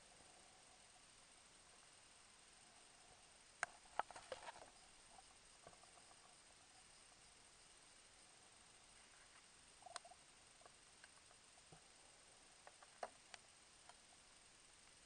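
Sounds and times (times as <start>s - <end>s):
faint underwater hiss: 0.0s - 15.0s
soft clicks and ticks: 9.0s - 12.0s, 12.6s - 14.2s.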